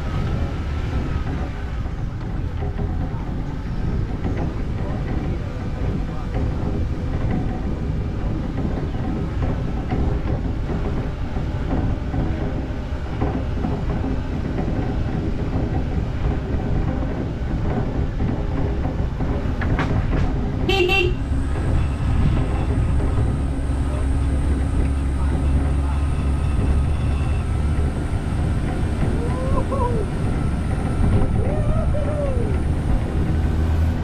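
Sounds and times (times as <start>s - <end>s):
car engine rumble: 0.0s - 34.0s
wind on microphone: 13.4s - 34.0s
car horn toot: 20.7s - 22.3s.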